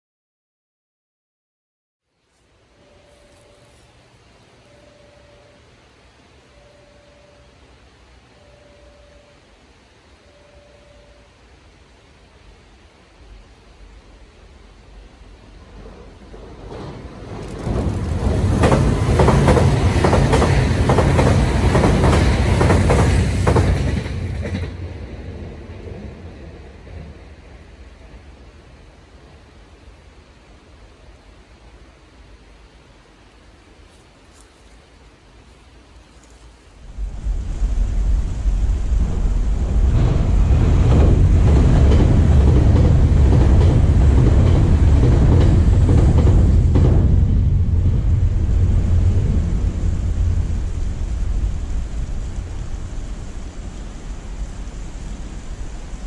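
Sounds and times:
train rumbling over bridge: 2.4 - 56.0
wheel clacks over rail joints: 15.8 - 25.1.

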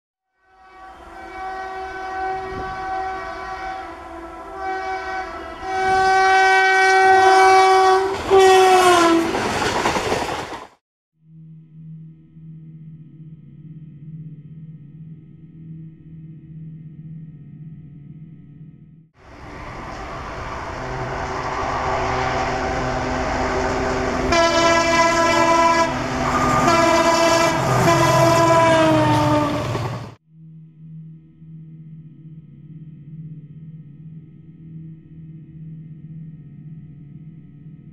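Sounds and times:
locomotive horn blasts: 0.3 - 9.4, 19.4 - 29.8
rush of passing train: 0.7 - 10.8, 19.2 - 30.2
diesel locomotive running: 19.2 - 30.2.

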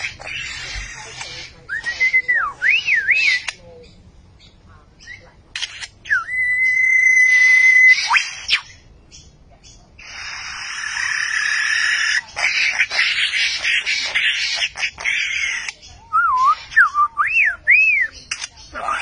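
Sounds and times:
swooping whistles: 1.7 - 3.5, 6.1 - 8.8, 16.2 - 18.1
bird clicks and rasping bursts: 5.5 - 6.0, 18.3 - 18.6.

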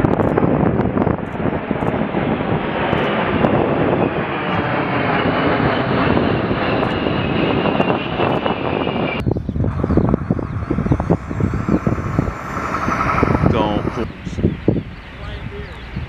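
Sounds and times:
dull low rumble: 0.0 - 16.0
jet engines rushing overhead: 0.0 - 16.0
faint high whine: 8.2 - 15.8.

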